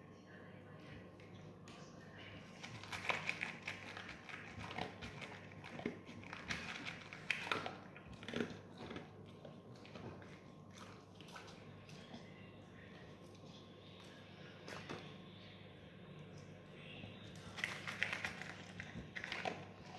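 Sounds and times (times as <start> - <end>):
dog crunching dry kibble: 2.5 - 12.3, 17.4 - 19.9.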